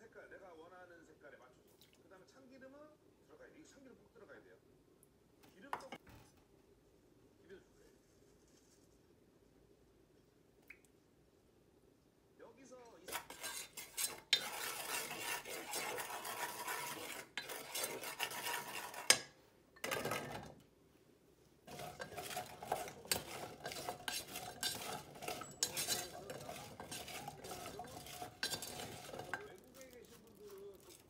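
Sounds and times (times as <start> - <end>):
wooden spoon scraping a pot: 13.0 - 20.6, 21.6 - 31.0
rice cakes clattering in a pot: 13.1 - 20.6, 21.7 - 31.0.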